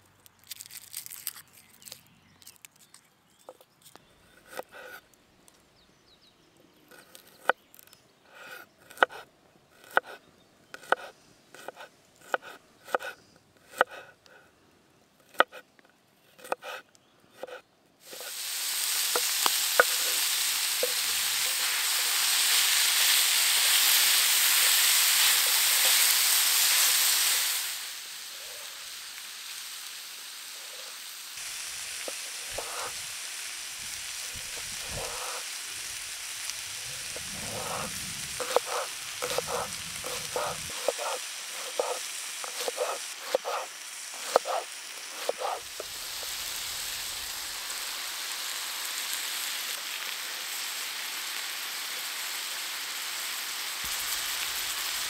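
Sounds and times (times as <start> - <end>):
food sizzling in a hot pan: 18.0 - 55.0.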